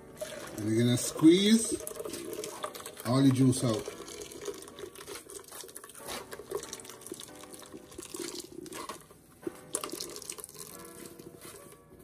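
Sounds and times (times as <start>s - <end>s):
liquid dripping through a metal sieve: 0.1s - 9.0s, 9.6s - 11.2s.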